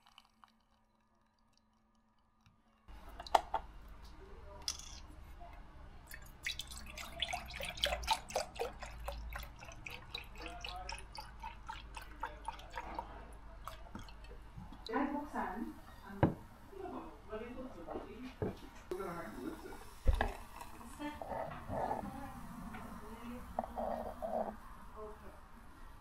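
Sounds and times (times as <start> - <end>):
milk pouring into metal jug: 0.0 - 3.4, 6.1 - 14.4.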